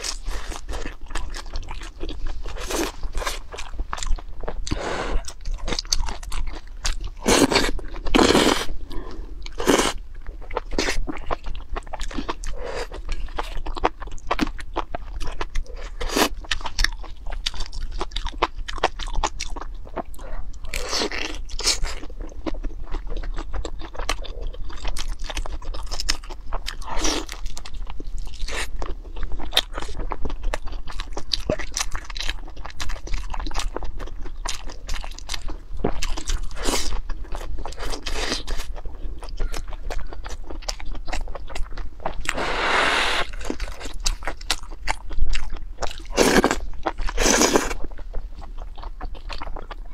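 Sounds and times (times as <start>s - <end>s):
crunching and chewing food: 0.0s - 49.9s
slurping noodles: 42.3s - 43.6s.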